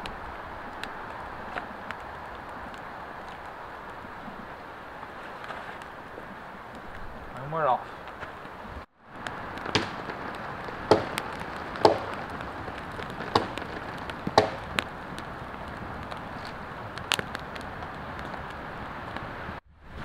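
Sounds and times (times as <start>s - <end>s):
fire cracking and popping: 0.0s - 7.4s, 8.0s - 20.0s
campfire flames rushing: 0.0s - 20.0s.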